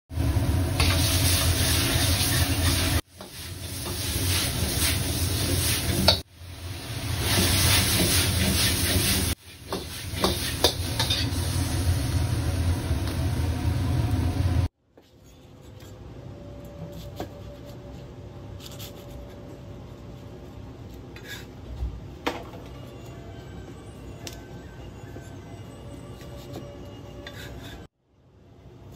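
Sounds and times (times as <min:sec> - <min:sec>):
gas burner low roar: 0:00.1 - 0:03.1, 0:10.5 - 0:14.7
food sizzling in hot oil: 0:00.1 - 0:14.7
metal ladle scraping a wok: 0:00.8 - 0:06.2, 0:07.2 - 0:11.6.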